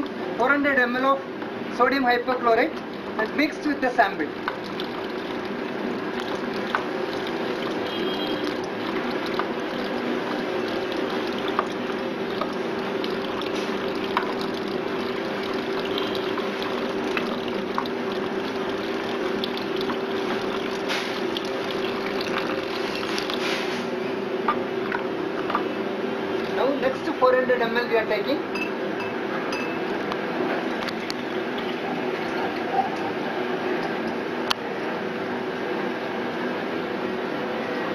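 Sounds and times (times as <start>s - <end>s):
liquid pouring into plastic bucket: 2.6s - 23.9s, 26.3s - 26.8s, 30.6s - 34.3s.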